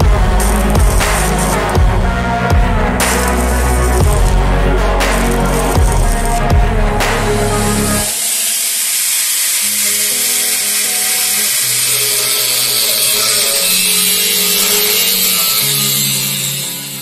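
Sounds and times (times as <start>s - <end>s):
angle grinder grinding metal: 0.0s - 17.0s
background music: 0.0s - 17.0s.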